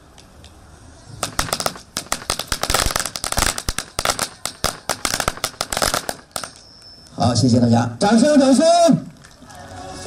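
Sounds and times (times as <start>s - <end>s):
firecrackers cracking: 0.1s - 6.9s.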